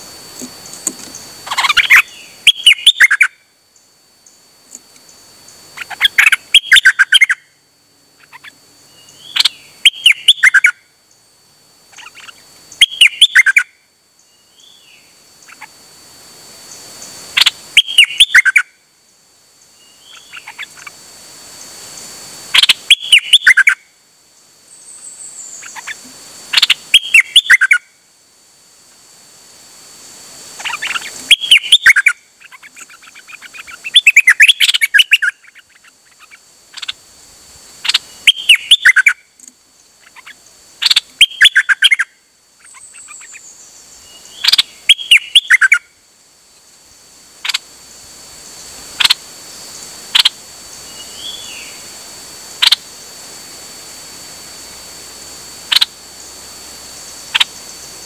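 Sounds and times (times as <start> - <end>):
high falling bird call: 1.1 - 3.4, 17.4 - 18.7, 22.5 - 23.8, 30.6 - 37.0
songbird whistles and chirps: 1.1 - 3.4, 5.8 - 7.5, 8.2 - 10.8, 12.0 - 15.7, 17.4 - 18.7, 22.6 - 23.8, 26.6 - 27.8, 30.6 - 37.0, 37.8 - 39.2, 40.0 - 45.9.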